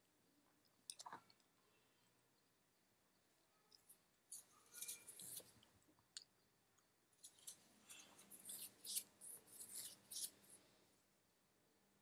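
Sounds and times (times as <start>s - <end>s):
faint small clicks and crackles: 0.4s - 1.6s.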